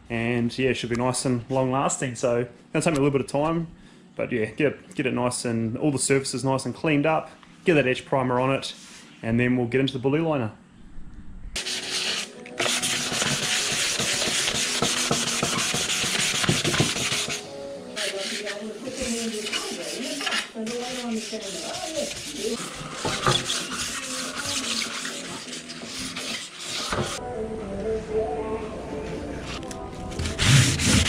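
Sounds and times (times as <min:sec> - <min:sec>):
hand sanding metal panel: 0:11.6 - 0:17.4, 0:18.0 - 0:27.2, 0:30.3 - 0:31.0.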